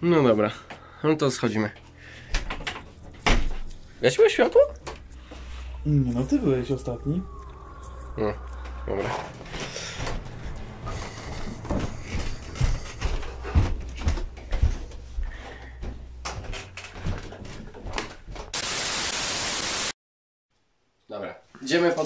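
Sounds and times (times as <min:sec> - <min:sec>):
footsteps on wooden stairs: 0:08.5 - 0:18.6
loud even hiss: 0:18.6 - 0:20.0.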